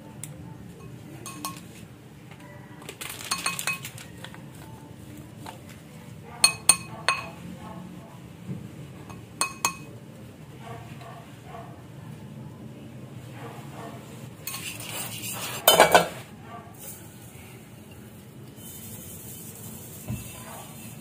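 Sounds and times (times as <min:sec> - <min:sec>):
plastic spoons clinking against bowl: 0:00.8 - 0:04.8, 0:06.4 - 0:07.4, 0:09.1 - 0:09.9, 0:15.6 - 0:16.1.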